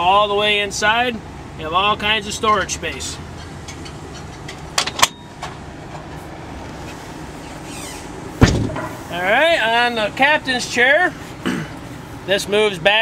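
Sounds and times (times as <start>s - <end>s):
outdoor background noise: 0.0s - 13.0s
loud thump: 8.4s - 9.0s.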